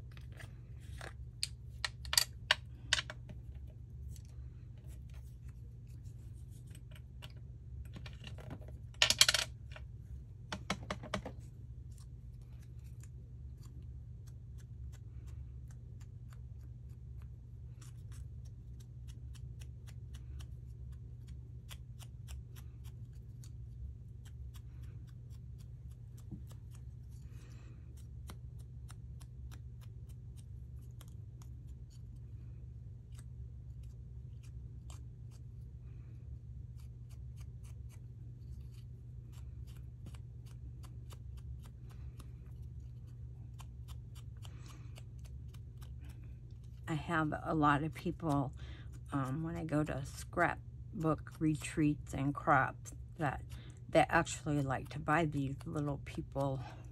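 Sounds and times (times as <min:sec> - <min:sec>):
steady low hum: 0:00.0 - 0:56.9.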